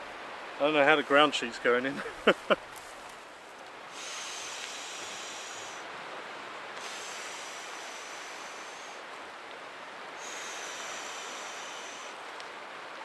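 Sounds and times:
breath hissing into mat valve: 0:03.9 - 0:05.9, 0:06.8 - 0:09.0, 0:10.2 - 0:12.2.

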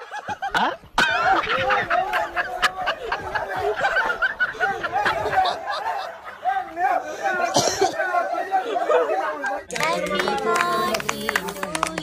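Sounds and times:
people laughing and snickering: 0:00.0 - 0:09.4
excited chatter: 0:00.0 - 0:12.0.

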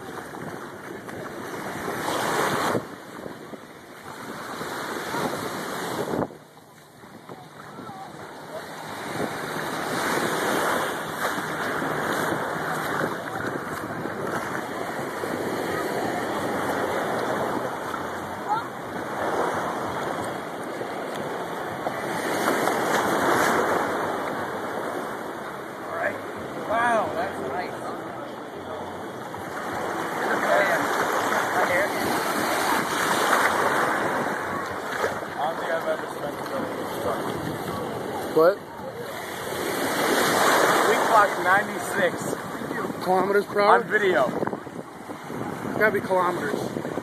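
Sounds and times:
wind buffeting microphone: 0:00.0 - 0:25.6, 0:26.3 - 0:47.0
water sloshing and lapping: 0:00.0 - 0:26.4, 0:27.2 - 0:47.0
small waves washing: 0:00.0 - 0:47.0.

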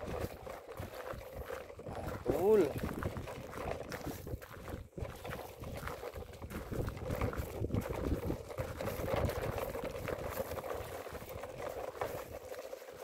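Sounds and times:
toy truck wheels crunching gravel: 0:00.0 - 0:13.0.

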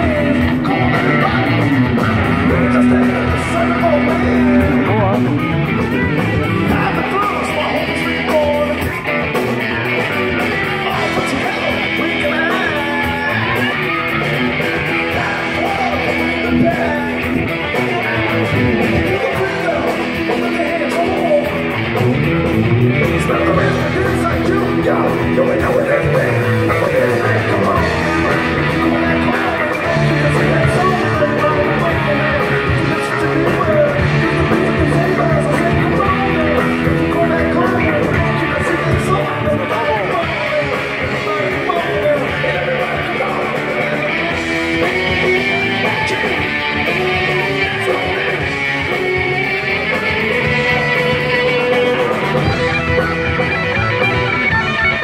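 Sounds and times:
drums: 0:00.0 - 0:55.0
electric guitars: 0:00.0 - 0:55.0
keyboard: 0:00.0 - 0:55.0
person singing: 0:00.0 - 0:55.0.

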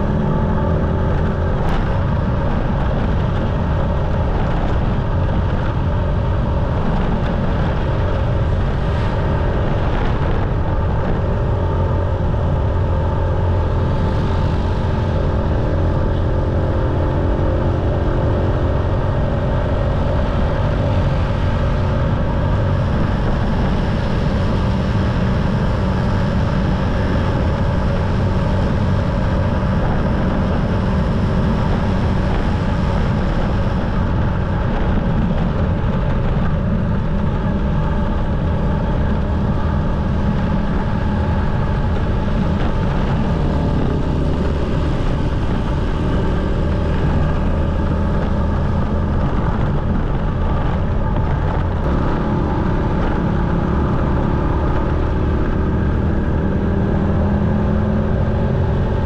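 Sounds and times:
motorcycle engine running: 0:00.0 - 0:59.0
wind and road noise rumble: 0:00.0 - 0:59.0.

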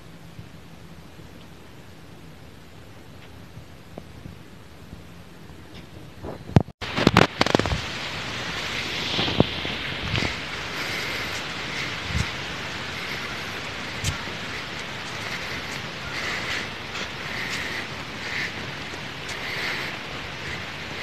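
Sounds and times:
steady outdoor hiss: 0:00.0 - 0:21.0
microphone handling noise: 0:05.6 - 0:08.0, 0:08.6 - 0:19.5.

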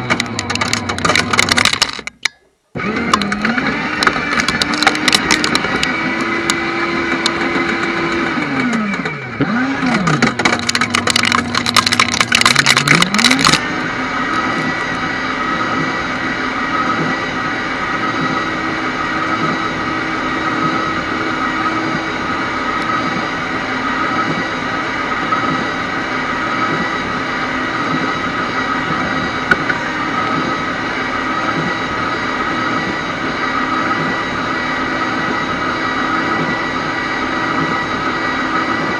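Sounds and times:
shredder motor running: 0:00.0 - 0:02.1, 0:02.8 - 0:38.9
plastic disc snapping in shredder: 0:00.0 - 0:13.6.

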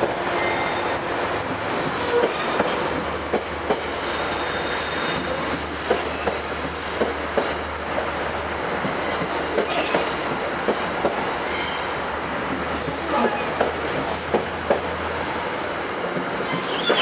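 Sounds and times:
train cars rolling past: 0:00.0 - 0:17.0
high wheel squeal: 0:03.8 - 0:05.2, 0:16.0 - 0:17.0.

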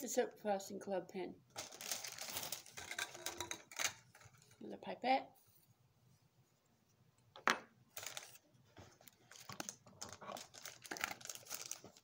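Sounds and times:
plastic crinkling and clicks: 0:09.0 - 0:12.0.

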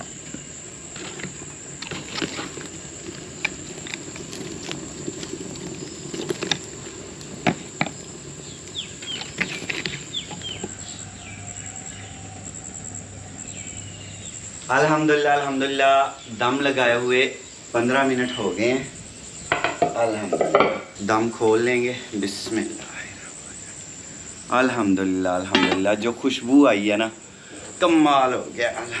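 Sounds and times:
crackling firewood: 0:00.0 - 0:29.0
high insect whine: 0:00.0 - 0:29.0
bird chirps: 0:08.4 - 0:14.8.

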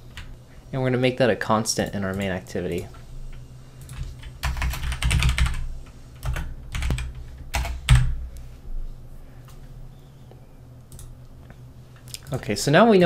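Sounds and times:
typing on a keyboard: 0:03.8 - 0:05.6, 0:06.2 - 0:08.0.

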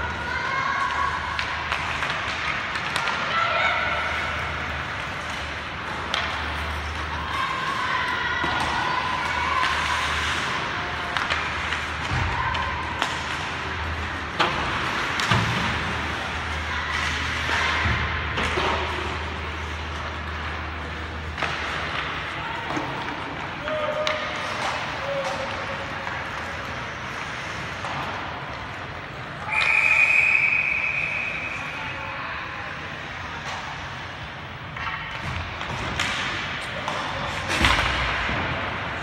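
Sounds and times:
hockey sticks and puck clacking: 0:00.0 - 0:32.0, 0:32.9 - 0:39.0.

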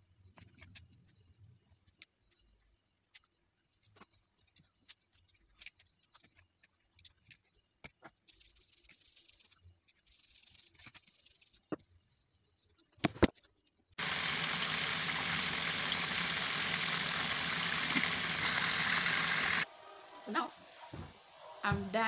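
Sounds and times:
soft hissing: 0:14.0 - 0:22.0.

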